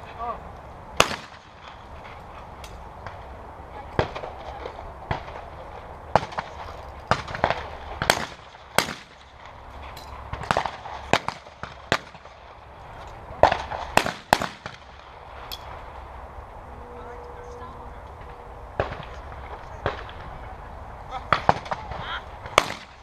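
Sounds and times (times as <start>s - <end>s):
shotgun shots: 1.0s - 1.5s, 6.2s - 9.3s, 10.3s - 12.3s, 13.4s - 15.0s, 21.3s - 23.0s.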